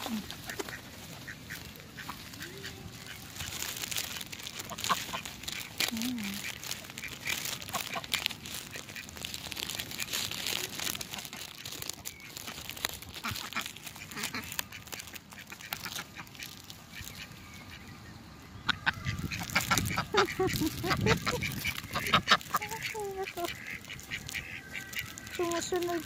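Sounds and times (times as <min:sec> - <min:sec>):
duck quacking: 0:00.1 - 0:03.4, 0:04.6 - 0:09.1, 0:13.2 - 0:17.9, 0:18.6 - 0:26.0.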